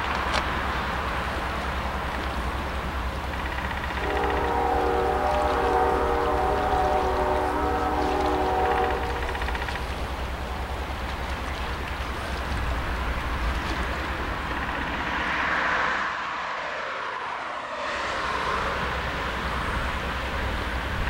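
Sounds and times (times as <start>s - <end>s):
distant freight train rumble: 0.0s - 21.0s.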